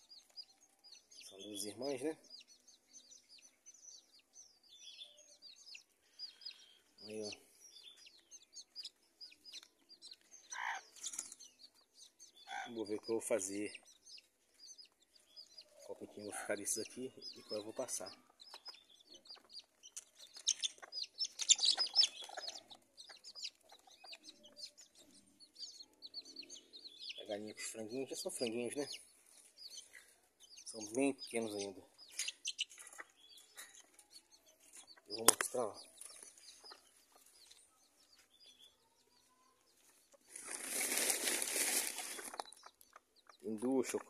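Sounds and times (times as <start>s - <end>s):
chicks peeping: 0.0s - 44.0s
small birds chirping: 0.0s - 44.0s
hen clucking: 10.4s - 11.4s, 12.4s - 13.9s, 15.6s - 29.0s, 30.6s - 34.0s.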